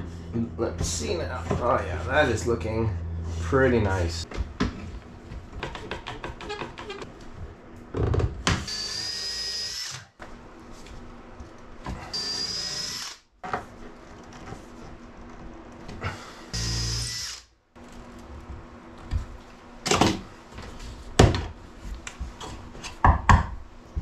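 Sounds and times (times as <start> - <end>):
cordless drill whining: 8.7 - 10.0, 12.1 - 13.2, 16.6 - 17.4.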